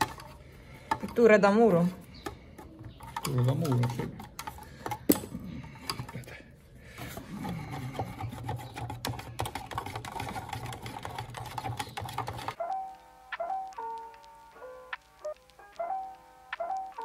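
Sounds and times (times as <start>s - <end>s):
stirrer scraping paint tin: 0.0s - 1.6s, 2.2s - 5.0s, 7.0s - 12.6s.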